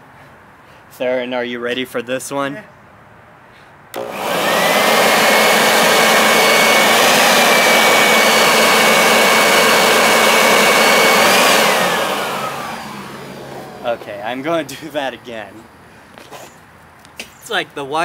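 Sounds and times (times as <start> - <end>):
leaf blower whining: 4.0 - 15.0.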